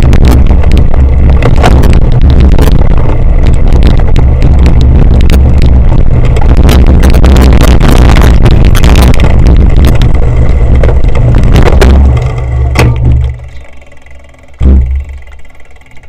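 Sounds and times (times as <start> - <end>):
wind buffeting camera: 0.0 - 13.8
bike riding over rough grass: 0.0 - 16.0
thumps of bike carried: 11.6 - 13.6.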